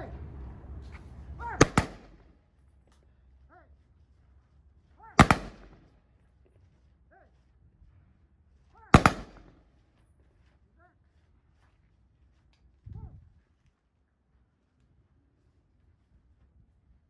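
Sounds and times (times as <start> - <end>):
rifle volley crack: 1.4 - 2.4, 5.1 - 5.9, 8.8 - 9.7.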